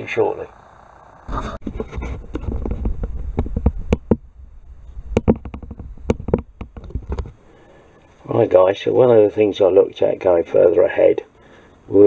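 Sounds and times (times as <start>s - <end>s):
low rumble: 1.0s - 7.8s
handling knocks and taps: 1.6s - 7.4s.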